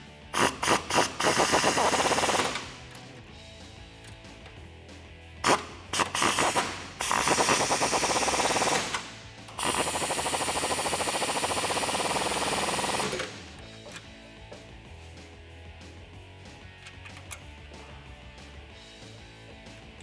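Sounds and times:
background music: 0.0 - 20.0
impact wrench hammering: 0.4 - 3.0, 5.4 - 14.1.

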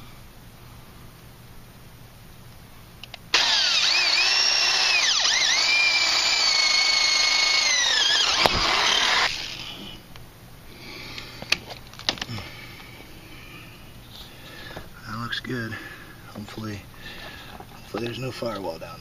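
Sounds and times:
power drill boring through wood: 3.3 - 10.0.

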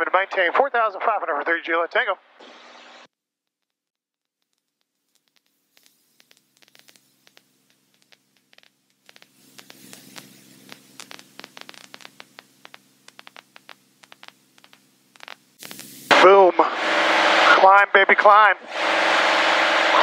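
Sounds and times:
radio static crackling: 0.0 - 3.1, 4.3 - 20.0
low steady hum: 5.8 - 20.0.

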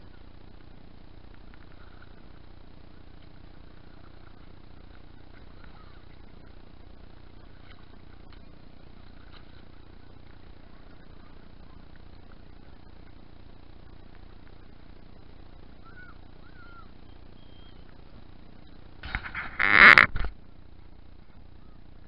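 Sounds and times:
steady low rumble: 0.0 - 22.0
paddle splashing in water: 7.3 - 13.2.

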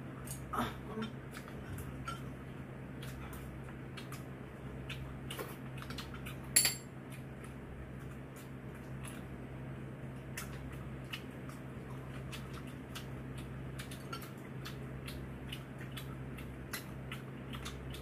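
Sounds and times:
steady low hum: 0.0 - 18.0
chewing: 1.3 - 9.4, 10.1 - 18.0
tableware clicks and taps: 6.6 - 6.9.

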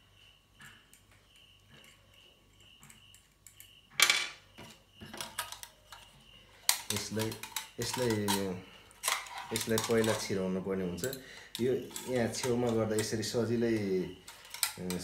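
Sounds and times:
metal parts clinking and clattering: 4.0 - 10.4, 11.0 - 15.0.

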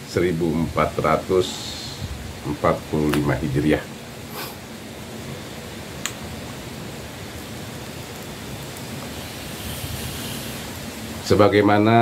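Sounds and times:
steady background hiss: 0.0 - 12.0
man exhaling smoke: 1.4 - 2.3, 4.3 - 4.7, 9.0 - 11.1.

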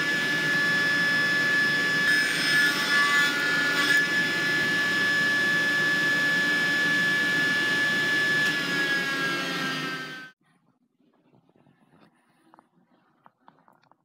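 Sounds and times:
table saw whining: 0.0 - 10.4.

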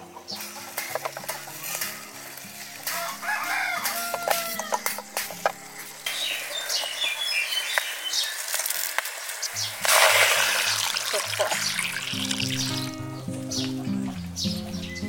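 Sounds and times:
soft background music: 0.0 - 7.9, 9.6 - 15.0
birds chirping: 0.0 - 15.0
water pouring into a metal pot: 5.8 - 12.9.

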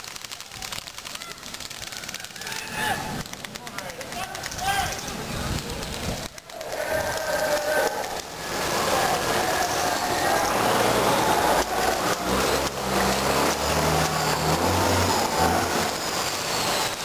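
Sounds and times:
sharp clicks: 0.0 - 8.6
steady rushing noise: 0.0 - 17.0
low engine hum: 5.6 - 17.0.

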